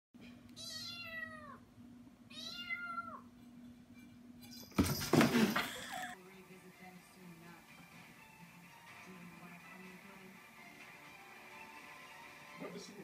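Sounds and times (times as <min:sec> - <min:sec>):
kitten meowing: 0:00.6 - 0:01.6, 0:02.3 - 0:03.2.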